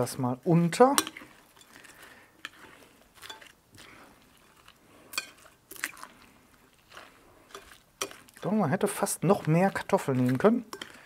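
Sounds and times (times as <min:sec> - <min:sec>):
spoon stirring potatoes: 0:00.0 - 0:11.0
spoon clinking against glass: 0:05.1 - 0:05.4.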